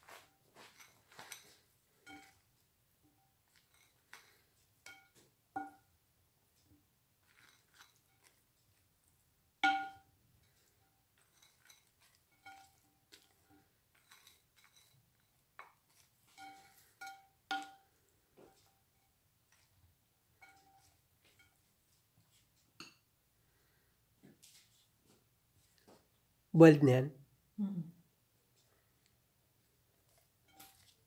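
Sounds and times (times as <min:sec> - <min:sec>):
wooden spoon clinking on glass bowls: 0:00.0 - 0:05.9, 0:07.2 - 0:08.5, 0:09.6 - 0:19.7, 0:20.3 - 0:21.7, 0:30.4 - 0:31.0.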